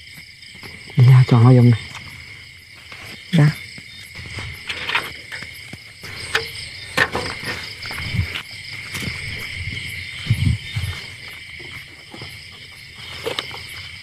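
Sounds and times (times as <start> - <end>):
crickets chirping: 0.0 - 14.0.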